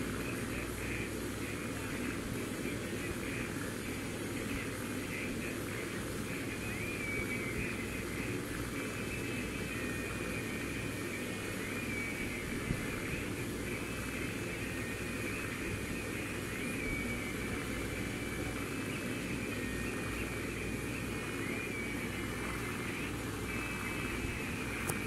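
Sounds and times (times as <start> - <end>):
faint high whine: 0.0 - 25.0.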